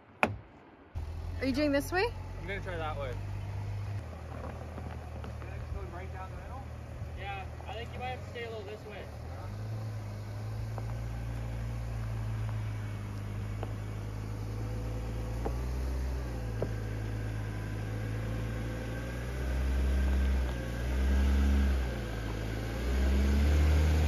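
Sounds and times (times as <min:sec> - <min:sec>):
sharp knocks: 0:00.2 - 0:00.5
engine running at low revs: 0:01.0 - 0:24.0.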